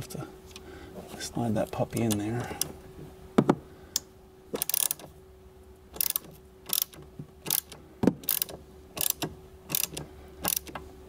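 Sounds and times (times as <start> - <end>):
ratchet wrench clicking: 4.6 - 5.1, 6.0 - 10.8.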